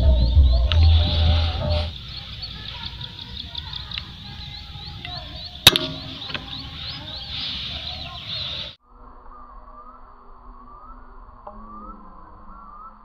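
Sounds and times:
high chirping calls: 0.0 - 13.0
air rifle firing: 5.6 - 6.8.

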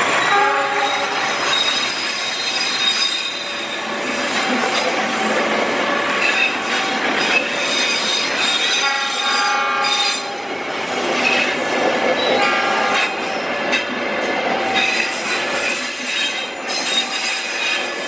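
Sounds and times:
train coaches rolling past: 0.0 - 18.0
train wheels squealing on rails: 0.0 - 18.0.

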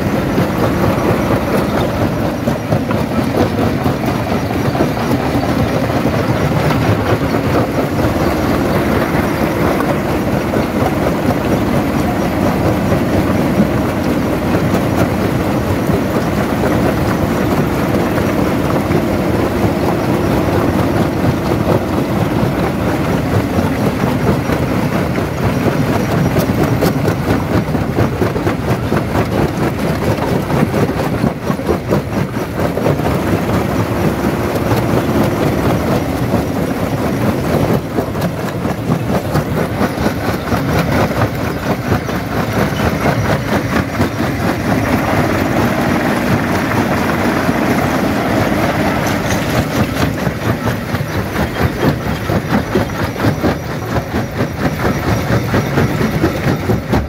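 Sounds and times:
rock crusher clattering: 21.4 - 57.0.

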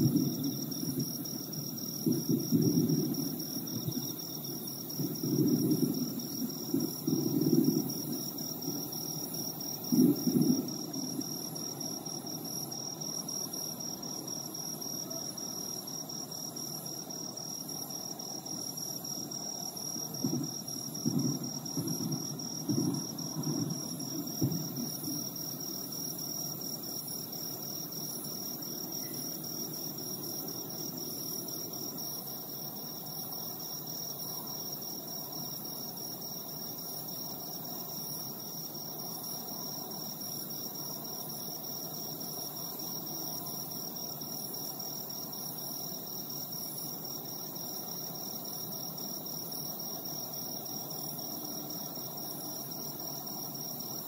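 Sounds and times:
distant fireworks booms: 0.0 - 11.9, 20.0 - 25.8
crickets trilling: 0.0 - 54.0.

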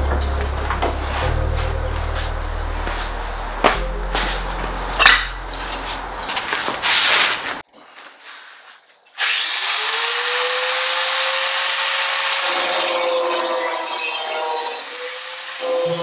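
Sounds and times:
scraping: 0.1 - 9.0
power tool grinding: 9.2 - 16.0.

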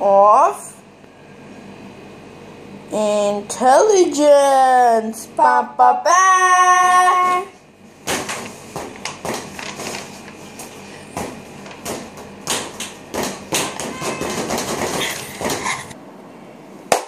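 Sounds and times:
boxing gloves punching mitts: 11.2 - 15.7.

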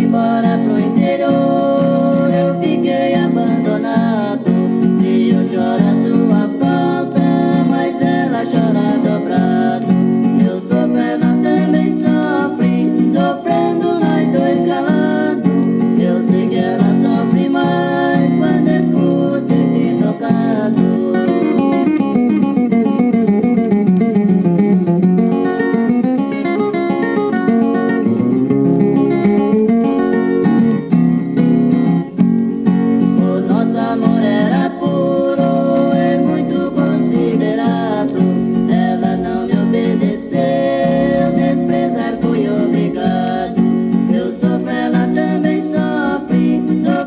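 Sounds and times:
person singing: 0.0 - 21.9, 33.1 - 47.0
plucked viola and guitar: 0.0 - 47.0.

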